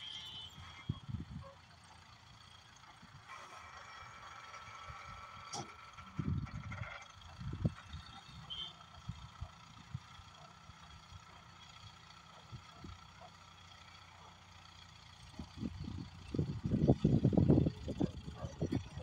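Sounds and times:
distant diesel crane engine humming: 0:00.0 - 0:19.0
wind rumbling on microphone: 0:15.4 - 0:19.0.

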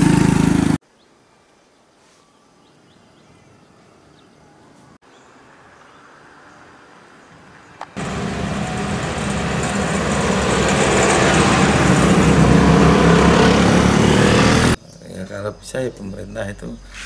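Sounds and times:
motor scooters passing: 0:00.0 - 0:00.8, 0:08.0 - 0:14.8
car passing: 0:08.0 - 0:14.8.

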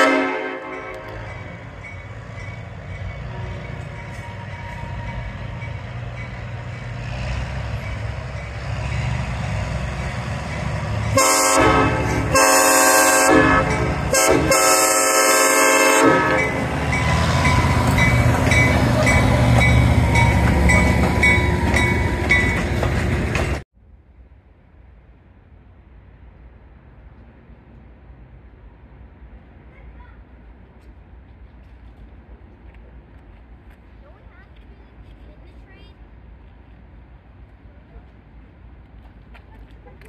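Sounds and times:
train air horn: 0:00.0 - 0:01.2, 0:11.1 - 0:16.7
crossing bell ringing: 0:00.0 - 0:09.2, 0:10.4 - 0:23.1
coaches rolling on rails: 0:00.0 - 0:23.6
diesel locomotive rumble: 0:00.0 - 0:40.0.

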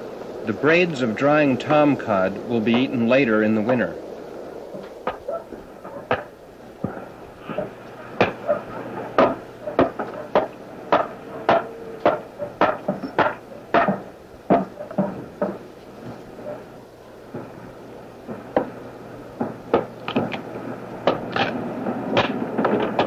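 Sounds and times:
hatchet chopping wood: 0:06.1 - 0:06.3, 0:07.6 - 0:08.5, 0:09.2 - 0:15.6.

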